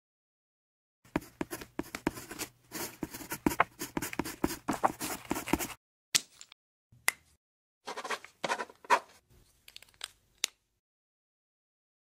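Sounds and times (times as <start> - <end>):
pen scratching on paper: 1.1 - 5.8.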